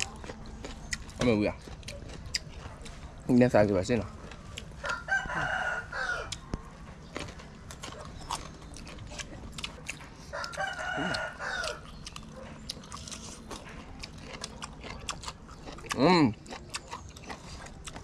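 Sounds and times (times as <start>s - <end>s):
people chewing crisp vegetables: 0.0s - 18.0s
rooster crowing: 4.8s - 6.4s, 10.3s - 11.9s.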